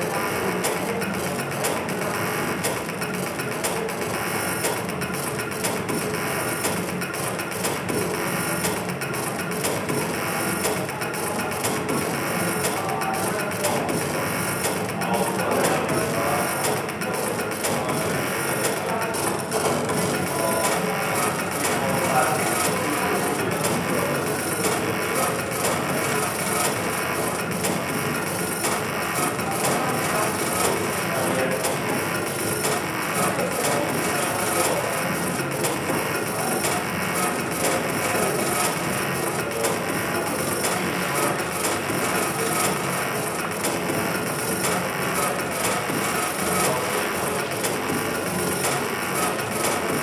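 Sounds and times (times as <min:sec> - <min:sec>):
crackling electronic noise music: 0:00.0 - 0:50.0.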